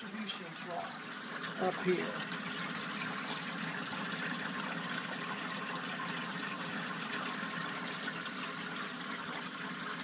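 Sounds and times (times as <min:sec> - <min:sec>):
water trickling: 0:00.0 - 0:10.0.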